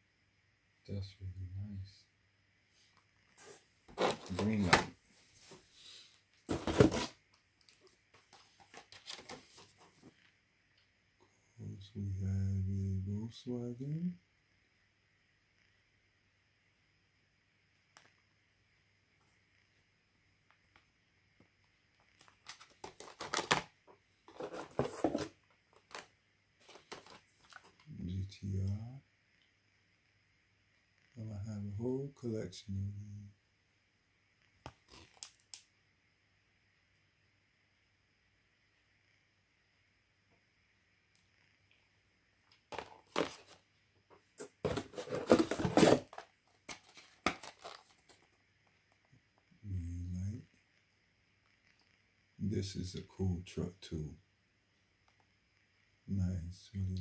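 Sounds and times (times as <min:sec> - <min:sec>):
toy cars and packaging rattling: 0:22.2 - 0:23.7, 0:24.3 - 0:27.8, 0:44.4 - 0:48.3
rustling rubbing: 0:24.3 - 0:26.0, 0:44.4 - 0:48.2.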